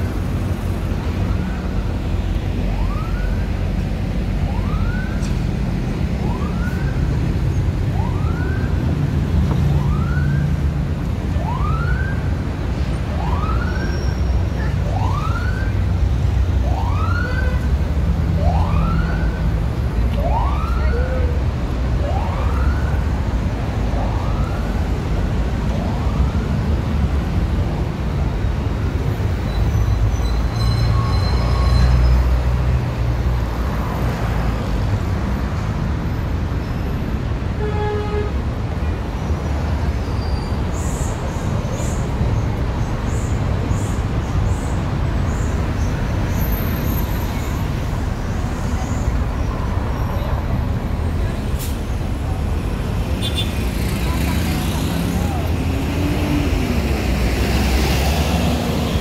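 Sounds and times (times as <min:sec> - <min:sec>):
city traffic rumble: 0:00.0 - 0:59.0
emergency vehicle siren: 0:00.9 - 0:27.4.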